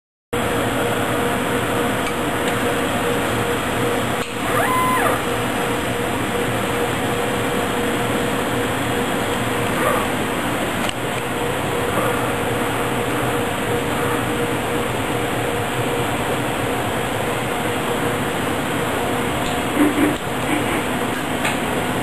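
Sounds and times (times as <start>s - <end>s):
constant machine hum: 0.4s - 22.0s
fan and air rushing: 0.4s - 22.0s
machine whine rising and falling: 3.0s - 9.5s.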